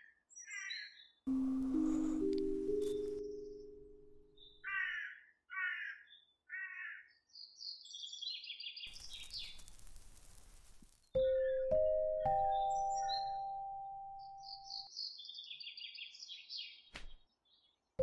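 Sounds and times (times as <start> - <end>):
crow cawing: 4.6 - 7.1
high chirping bird calls: 11.2 - 16.9.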